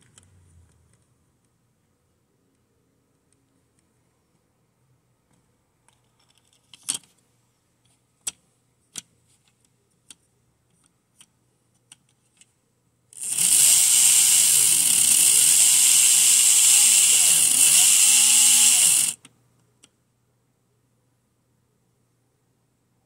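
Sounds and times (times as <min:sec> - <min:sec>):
slot car motor whine: 0:13.2 - 0:19.2.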